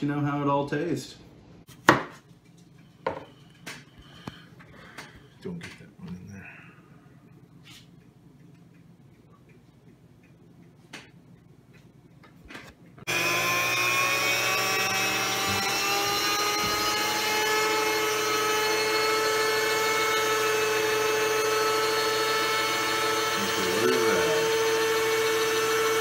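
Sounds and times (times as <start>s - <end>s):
electric meat grinder motor whine: 13.1s - 26.0s.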